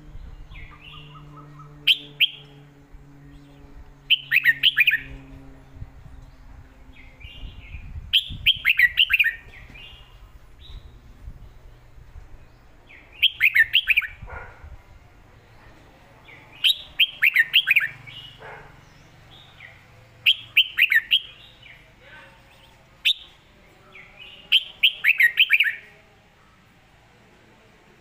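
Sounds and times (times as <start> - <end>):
bird singing whistled notes: 0.1 - 2.6, 3.2 - 5.2, 7.0 - 11.8, 12.4 - 14.2, 16.6 - 18.4, 19.3 - 21.8, 22.4 - 23.4, 24.2 - 25.9.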